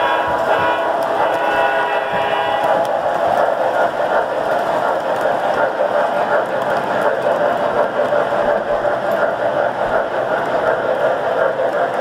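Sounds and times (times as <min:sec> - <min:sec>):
model train horn chord: 0:00.0 - 0:02.7
model train wheels rumbling: 0:00.0 - 0:12.0.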